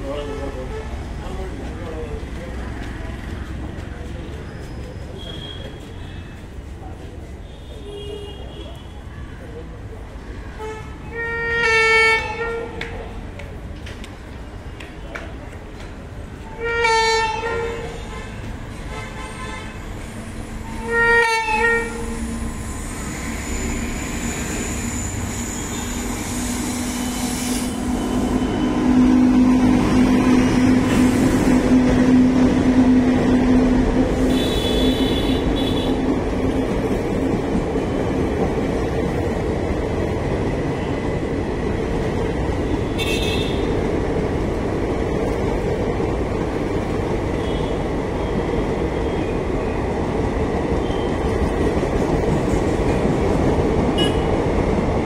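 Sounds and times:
train wheels rumbling on rail: 0.0 - 55.0
high wheel squeals: 4.4 - 6.4, 20.3 - 29.2.

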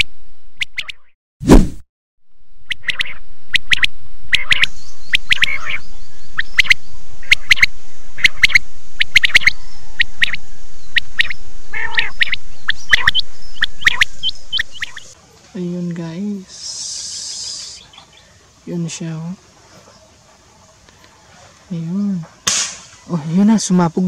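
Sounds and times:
sharp bird chirps: 2.7 - 15.2
steady hiss: 16.4 - 21.6.

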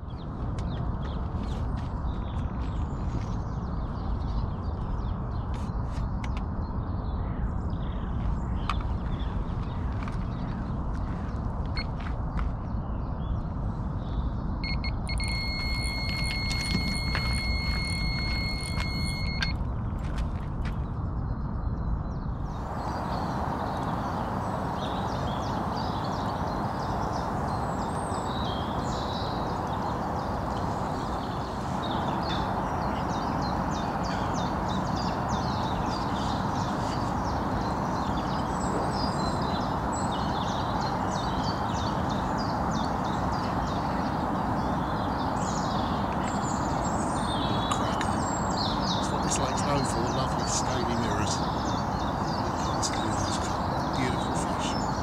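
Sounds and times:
small birds chirping and singing: 0.0 - 55.0
steady low rushing noise: 16.9 - 55.0.

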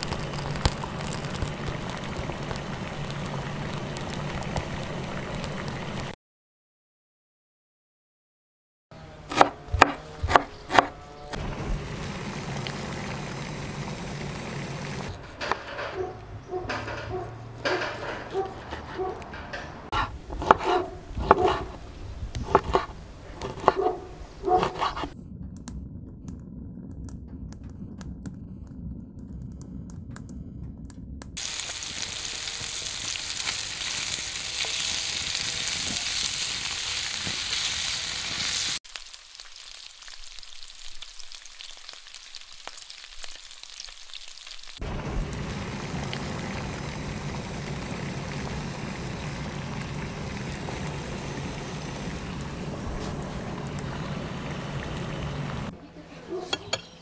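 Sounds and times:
fat sizzling in a frying pan: 0.0 - 6.1, 31.4 - 55.7
soup simmering: 0.0 - 6.2, 11.4 - 15.7, 31.4 - 55.7
knife chopping on wooden board: 9.3 - 10.9, 20.0 - 21.8, 22.4 - 23.9, 24.5 - 25.1.

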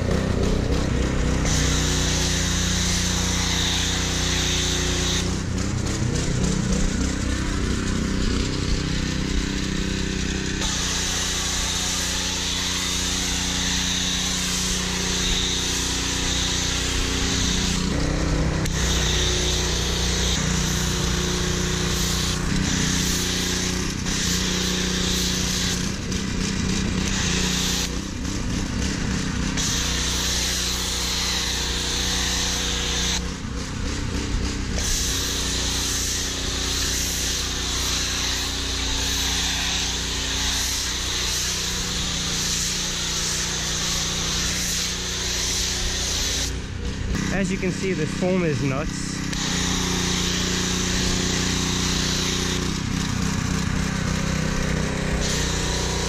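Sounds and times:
pressure washer hum: 0.0 - 56.0
foam spraying hiss: 1.5 - 5.2, 10.6 - 17.8, 18.8 - 25.8, 29.6 - 33.2, 34.8 - 46.6, 49.4 - 52.7.

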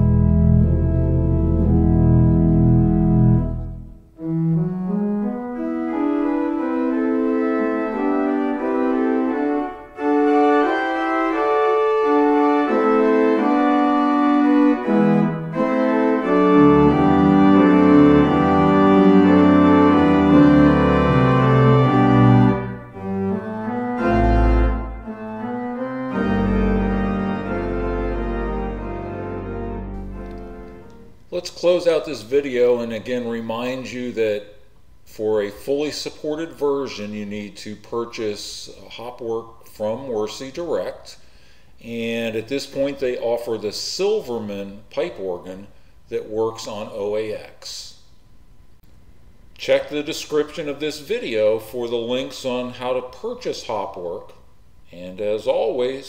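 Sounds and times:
pipe organ playing: 0.0 - 34.0.

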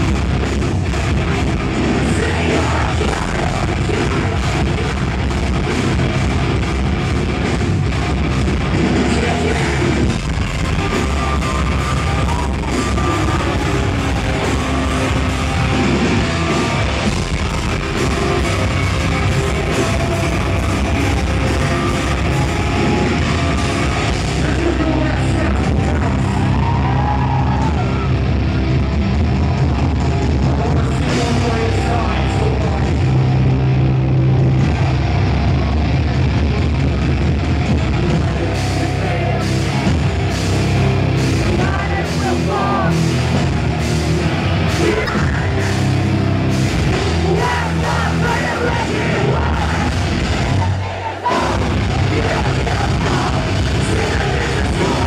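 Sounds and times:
bass: 0.0 - 55.0
distorted electric guitars: 0.0 - 55.0
drums: 0.0 - 55.0
screamed vocals: 25.8 - 28.1, 47.2 - 55.0.

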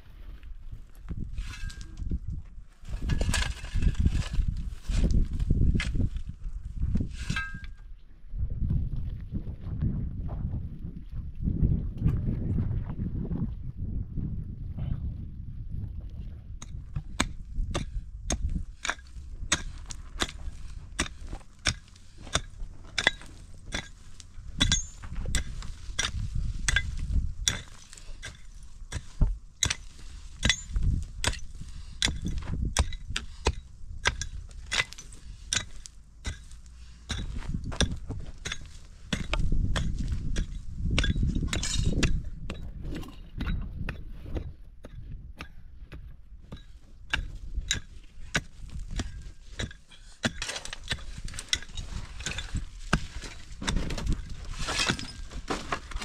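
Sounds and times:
hammer clinking on rock: 7.3 - 7.8, 24.6 - 42.7.

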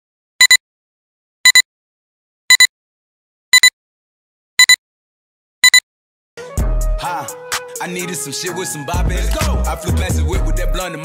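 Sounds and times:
high electronic countdown beeps: 2.5 - 2.7, 4.6 - 4.8, 5.6 - 5.8.

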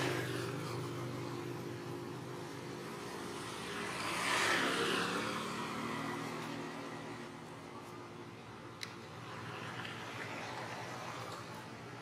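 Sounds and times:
vehicle passing: 0.0 - 7.6, 9.2 - 12.0.

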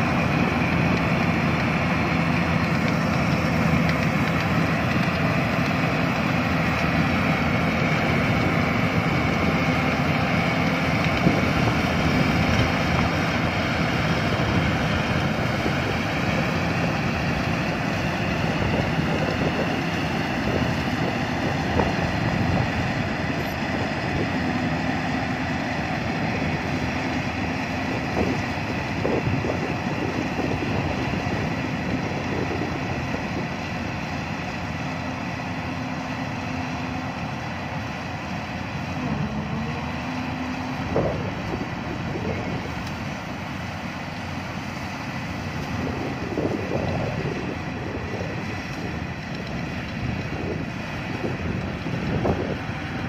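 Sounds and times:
combine harvester diesel engine: 0.0 - 53.0.

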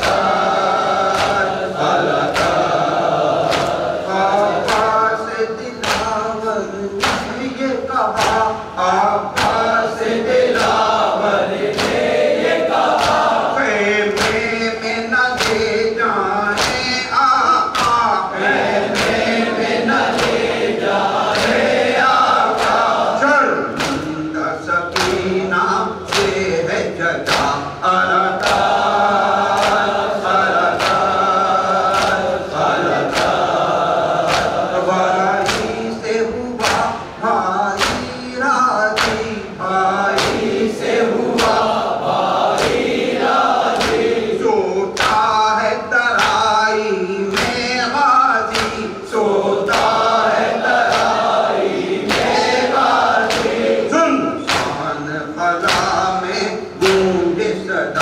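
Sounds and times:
chest-beating slaps: 0.0 - 5.0, 5.8 - 6.2, 7.0 - 7.5, 8.1 - 8.7, 9.3 - 9.8, 10.5 - 13.5, 14.1 - 14.5, 15.3 - 15.8, 16.5 - 17.0, 18.8 - 23.0, 23.7 - 24.2, 24.9 - 25.3, 26.1 - 26.4, 27.2 - 27.6, 28.4 - 34.8, 35.4 - 35.9, 36.6 - 37.2, 37.8 - 38.2, 39.0 - 39.4, 40.1 - 40.6, 41.3 - 41.8, 42.4 - 44.2, 45.0 - 45.3, 47.3 - 47.7, 48.5 - 48.8, 49.6 - 53.7, 54.4 - 55.0
men chanting a lament in chorus: 0.0 - 58.0.

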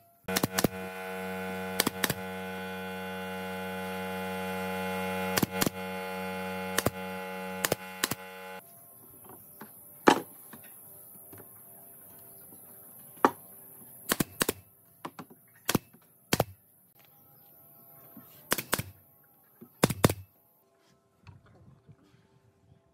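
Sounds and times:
steady hum: 0.0 - 9.0
pneumatic nail gun firing: 0.3 - 8.6, 14.1 - 14.6, 15.7 - 16.6, 18.5 - 19.0, 19.8 - 20.3.

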